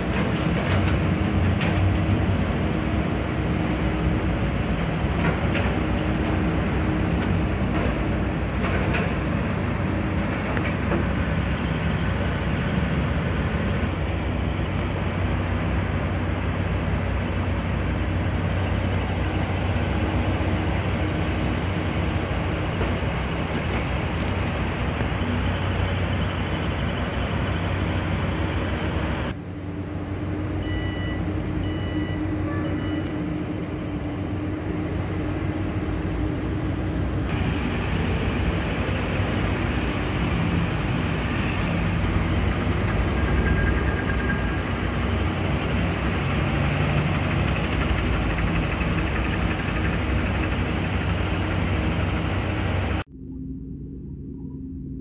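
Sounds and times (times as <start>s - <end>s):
heavy machinery rumbling: 0.0s - 55.0s
short high beeps: 30.6s - 33.1s.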